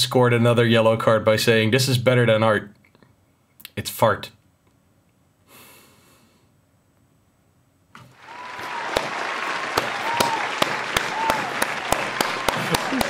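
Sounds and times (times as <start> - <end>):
applause: 8.1 - 13.0
sharp hand claps close: 8.1 - 13.0.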